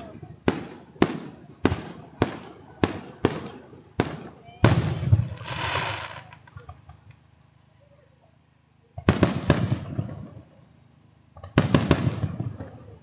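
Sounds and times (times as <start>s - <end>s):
firework crackles: 0.0s - 7.2s, 11.3s - 13.0s
firework shells bursting: 0.5s - 7.2s.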